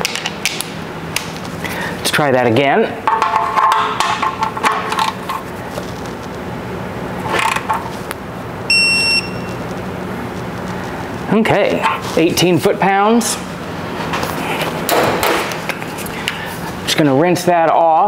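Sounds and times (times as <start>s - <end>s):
torque wrench high beep: 8.7s - 9.6s.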